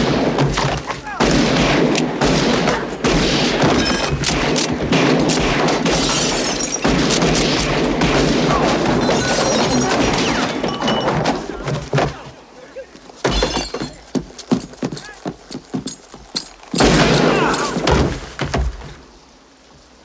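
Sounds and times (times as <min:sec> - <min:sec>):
booms and thuds: 0:16.8 - 0:19.0.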